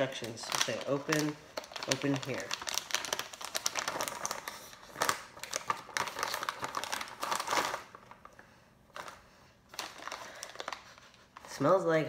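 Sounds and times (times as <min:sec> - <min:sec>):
snack bag crinkling: 0:00.0 - 0:11.6.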